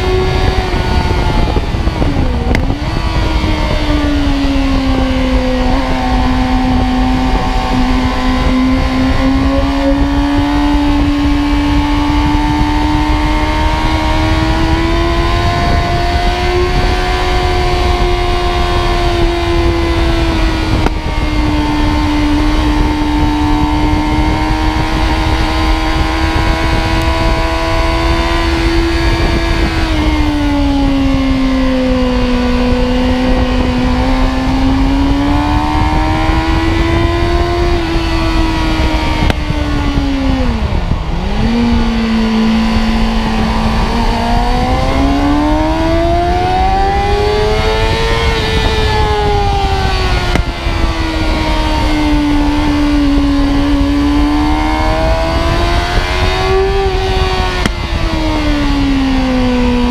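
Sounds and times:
motorcycle engine at high revs: 0.0 - 59.9
wind noise on microphone: 0.0 - 59.9.

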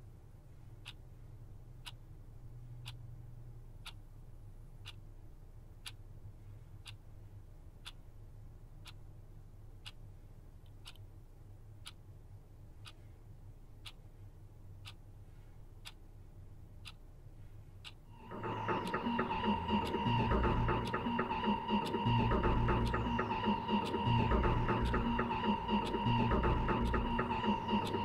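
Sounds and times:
low steady hum: 0.0 - 28.0
clock ticking: 0.8 - 3.1, 3.7 - 6.2, 6.8 - 13.0, 13.6 - 15.1, 15.7 - 28.0.

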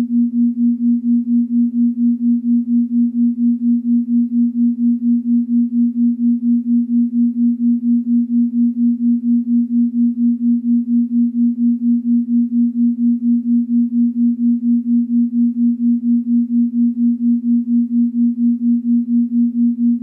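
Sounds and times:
low pulsing electronic tone: 0.0 - 20.0.

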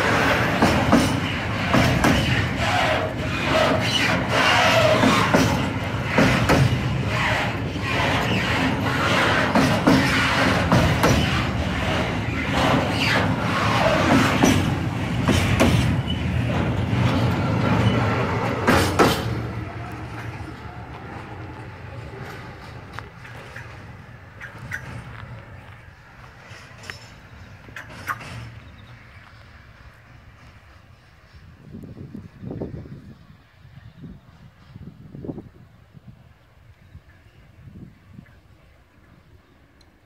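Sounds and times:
wagon wheels clattering over rail joints: 0.0 - 29.2
wheel squeals: 0.0 - 29.5.

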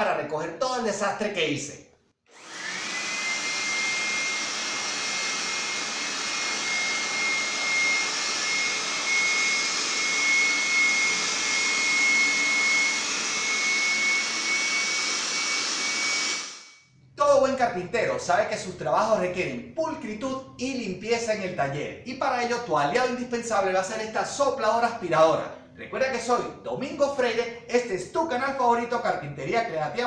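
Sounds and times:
blower vacuum motor whine: 2.3 - 16.8.

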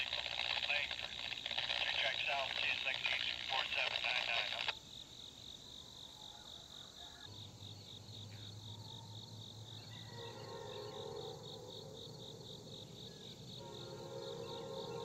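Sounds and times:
voice on a radio: 0.0 - 4.7
insect chirping: 4.7 - 15.0.

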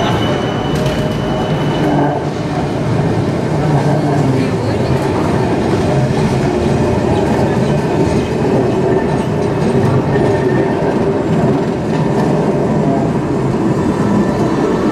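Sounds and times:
tram wheels rumbling on rails: 0.0 - 14.9.

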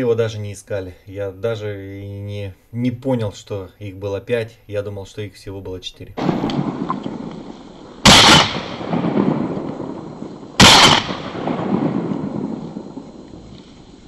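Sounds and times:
shotgun shots: 6.2 - 13.0
rumbling echo of gunshot: 6.2 - 14.0.

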